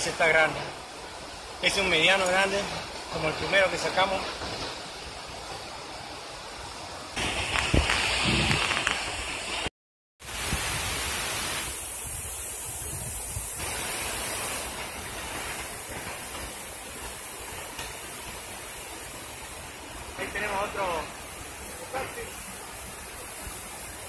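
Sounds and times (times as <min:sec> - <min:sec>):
water pouring over dam: 0:10.2 - 0:24.0.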